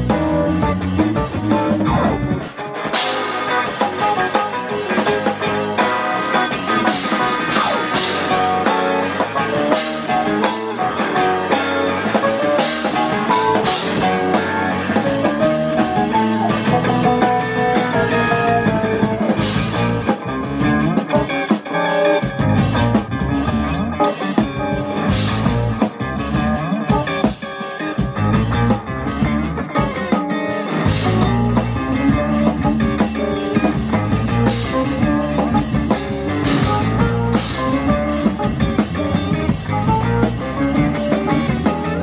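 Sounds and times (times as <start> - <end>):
live rock band playing: 0.0 - 42.0.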